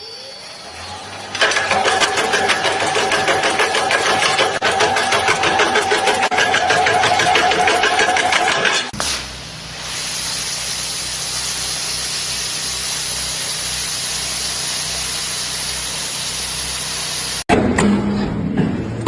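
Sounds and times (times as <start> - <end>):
pressure washer spraying asphalt: 1.3 - 17.5.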